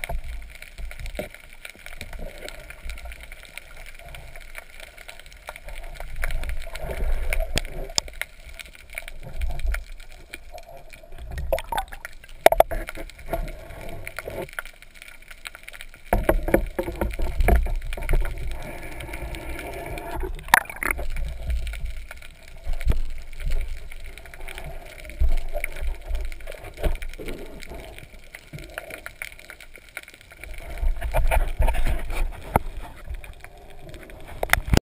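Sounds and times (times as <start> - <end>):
water sloshing and gurgling: 1.9 - 14.9, 15.9 - 34.8
low underwater rumbles: 8.9 - 14.5, 16.0 - 28.8.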